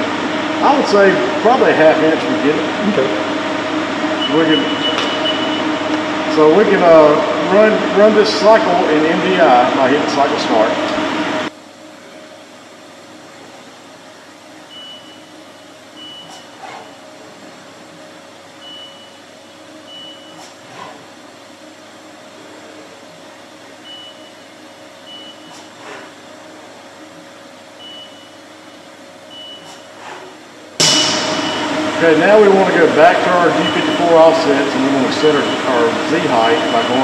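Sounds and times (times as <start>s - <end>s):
machine hum: 0.0s - 37.0s.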